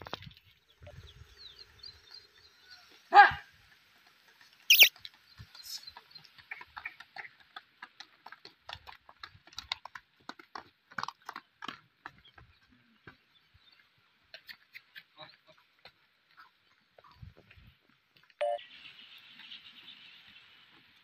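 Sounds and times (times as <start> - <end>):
hooves and footsteps on dirt: 1.8 - 18.4.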